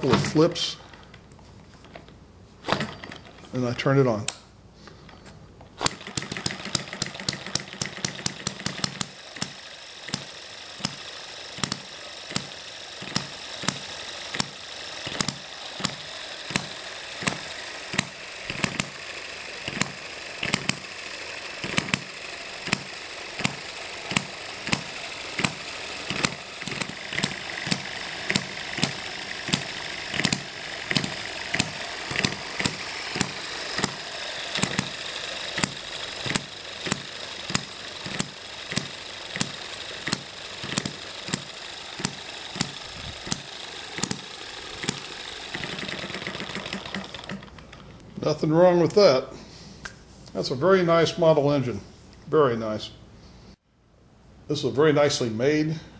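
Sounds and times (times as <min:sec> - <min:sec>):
light mechanical clatter: 0:00.0 - 0:04.4, 0:05.8 - 0:48.2
model engine firing pops: 0:05.8 - 0:11.0, 0:11.6 - 0:19.0, 0:19.7 - 0:20.9, 0:21.6 - 0:47.5.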